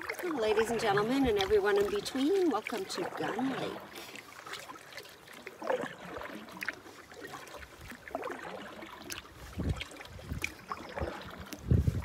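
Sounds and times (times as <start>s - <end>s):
water lapping against canoe hull: 0.0s - 12.0s
wind rumble on microphone: 9.3s - 12.0s.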